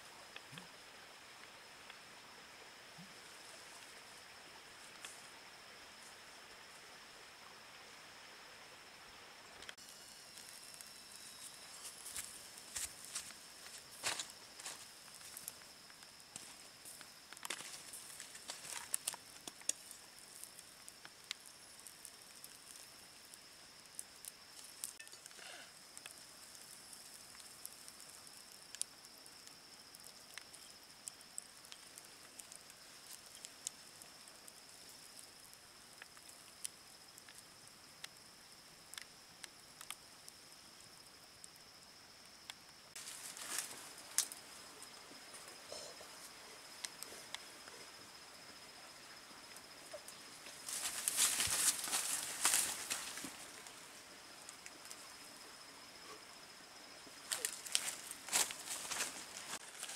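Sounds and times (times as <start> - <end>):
campfire embers crackling: 0.0 - 59.9
high insect drone: 0.0 - 59.9
rustling: 50.5 - 53.7.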